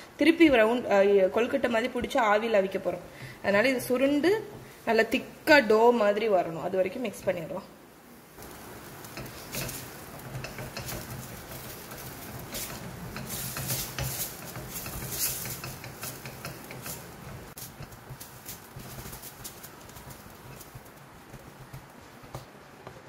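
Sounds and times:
wooden spatula scraping steel pan: 8.4 - 23.0.

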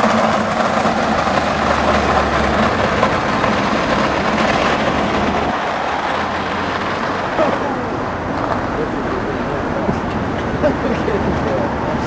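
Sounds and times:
go-kart rolling on tarmac: 0.0 - 12.0.

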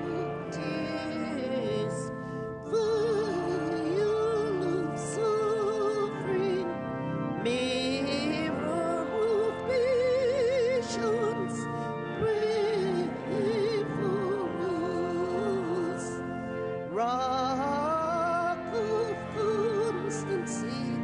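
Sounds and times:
sustained accompanying chords: 0.0 - 21.0
voice singing a hymn with vibrato: 0.0 - 21.0.

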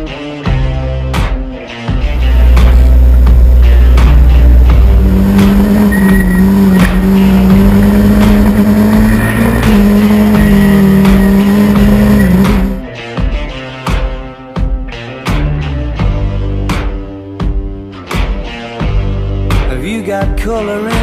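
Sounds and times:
rally car engine revving: 2.0 - 12.8.

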